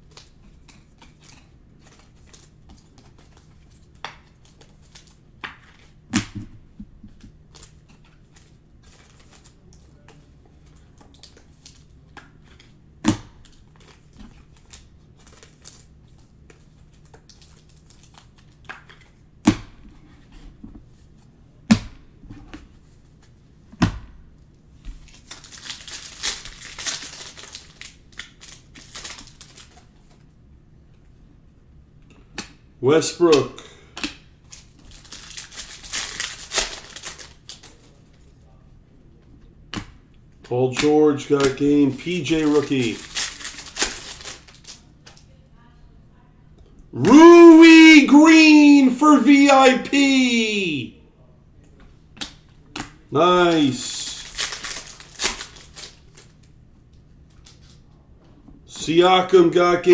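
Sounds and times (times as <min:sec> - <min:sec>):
foil pack crinkling and tearing: 0:13.4 - 0:16.0, 0:25.0 - 0:29.8, 0:34.5 - 0:38.0, 0:41.4 - 0:44.9, 0:53.4 - 0:56.3.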